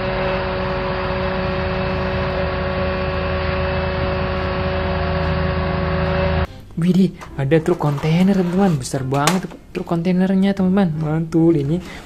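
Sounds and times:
fire truck mechanical hum: 0:00.0 - 0:06.5.

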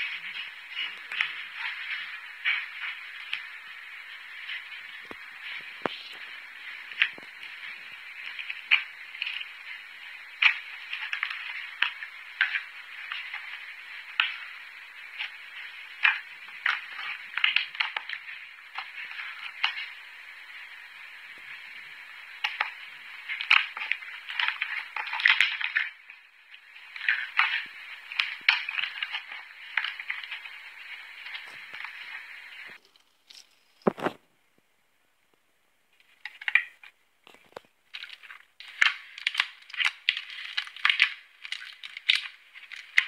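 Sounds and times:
wet clicks and pops: 0:22.4 - 0:26.0, 0:36.2 - 0:43.0.

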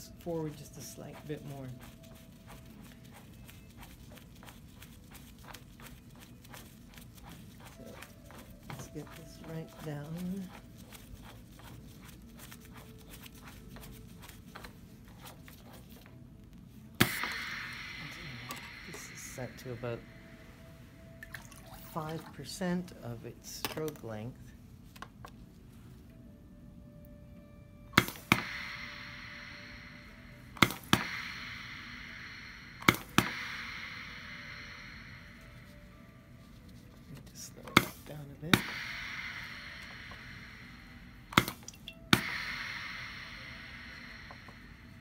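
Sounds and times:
pump hiss: 0:17.0 - 0:20.3, 0:28.0 - 0:35.9, 0:37.8 - 0:45.0.

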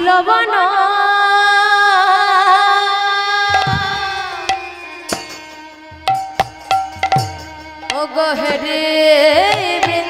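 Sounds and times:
hand drum strokes: 0:03.5 - 0:08.6.

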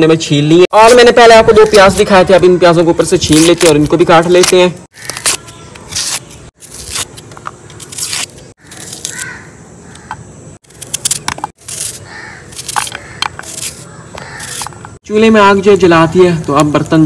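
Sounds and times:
knife cutting onion: 0:03.2 - 0:09.4, 0:10.6 - 0:14.8
knife scraping onion skin: 0:03.2 - 0:09.4, 0:10.6 - 0:14.9.

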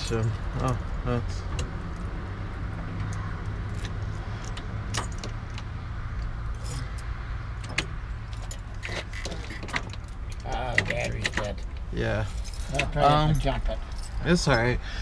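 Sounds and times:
key ring jingling: 0:12.3 - 0:14.7.

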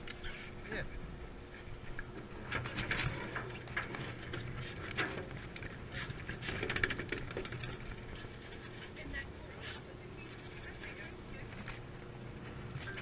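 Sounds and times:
boat engine humming: 0:00.0 - 0:13.0
fishing tackle clicking and rattling: 0:02.6 - 0:09.0.

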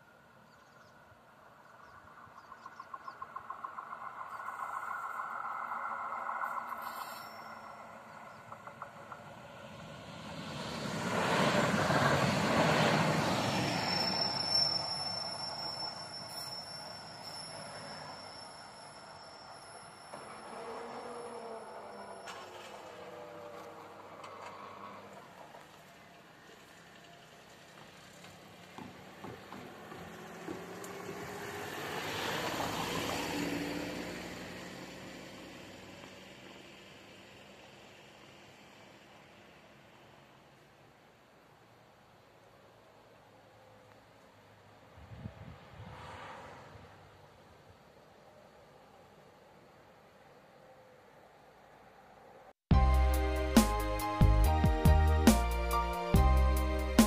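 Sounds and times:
railcar passing: 0:00.0 - 0:57.0
car driving past: 0:01.6 - 0:15.6, 0:19.9 - 0:39.9, 0:44.9 - 0:47.5
thin high whine: 0:04.2 - 0:08.4, 0:13.7 - 0:22.9.

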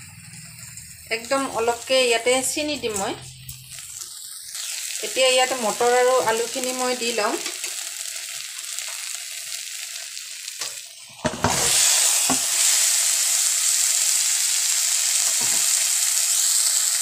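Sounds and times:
paste sizzling in a pan: 0:00.0 - 0:17.0
food thudding into pan: 0:10.6 - 0:12.6.

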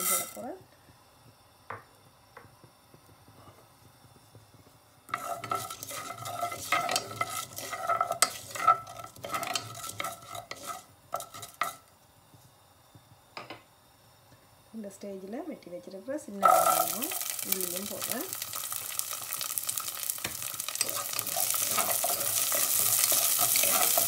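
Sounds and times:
seeds frying in oil: 0:00.0 - 0:24.0
wooden spoon scraping saucepan: 0:05.1 - 0:11.8, 0:16.4 - 0:24.0.

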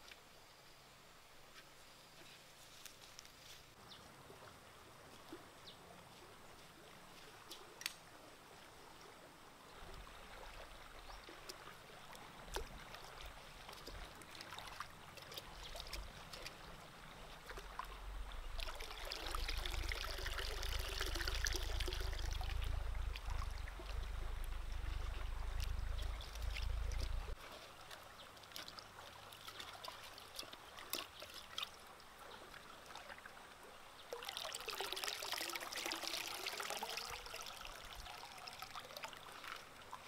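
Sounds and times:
water sloshing and trickling: 0:02.7 - 0:40.0
water pouring from pot: 0:18.6 - 0:23.4.

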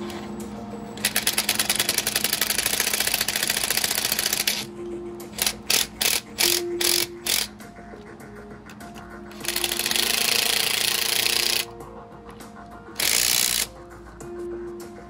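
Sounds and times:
ratchet wrench clicking: 0:01.0 - 0:04.7, 0:05.4 - 0:07.6, 0:08.7 - 0:11.7, 0:13.0 - 0:13.8.

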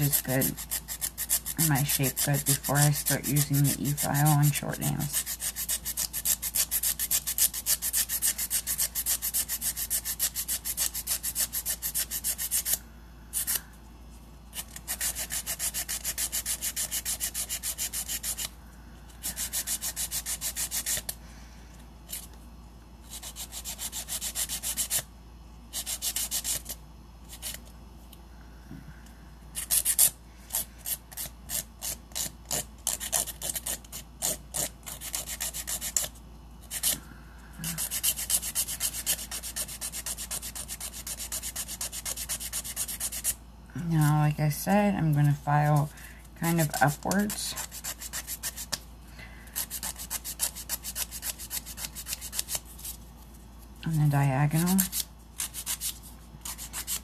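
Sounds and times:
nail file rasping: 0:00.0 - 0:13.6, 0:14.5 - 0:18.5, 0:19.2 - 0:21.2, 0:23.0 - 0:25.1, 0:25.7 - 0:27.6, 0:29.6 - 0:37.0, 0:37.6 - 0:43.4, 0:46.4 - 0:48.8, 0:49.6 - 0:53.0, 0:54.6 - 0:57.0.

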